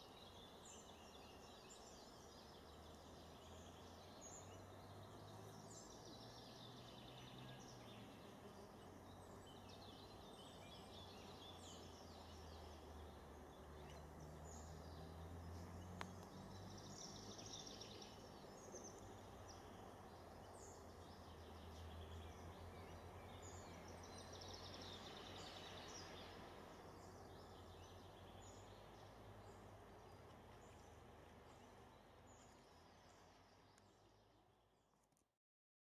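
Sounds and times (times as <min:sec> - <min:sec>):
birds calling and singing: 0:00.0 - 0:34.4.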